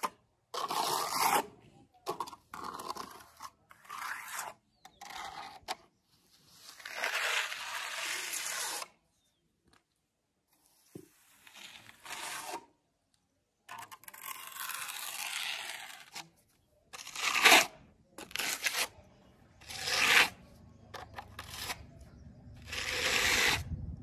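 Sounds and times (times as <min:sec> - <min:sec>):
steel trowel scraping wet concrete: 0:00.0 - 0:01.6, 0:02.2 - 0:05.7, 0:06.5 - 0:08.9, 0:11.1 - 0:12.7, 0:13.8 - 0:16.3, 0:17.0 - 0:20.4, 0:21.0 - 0:21.9, 0:22.5 - 0:23.8.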